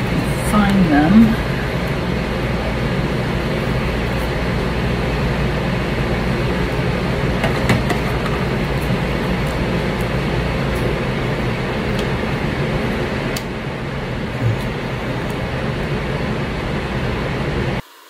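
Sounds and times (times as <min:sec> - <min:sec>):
steady background rush of noise: 0:00.0 - 0:17.8.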